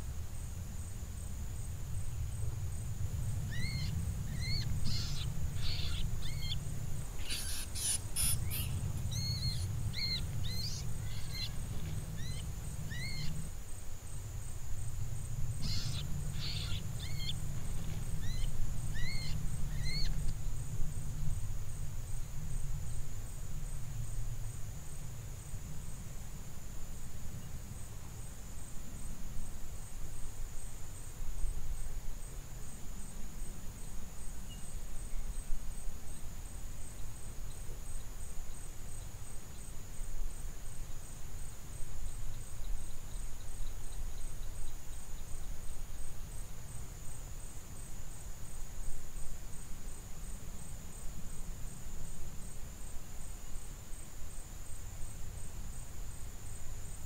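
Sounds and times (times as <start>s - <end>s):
insects trilling: 0.0s - 57.0s
low rumbling noise: 0.1s - 24.8s.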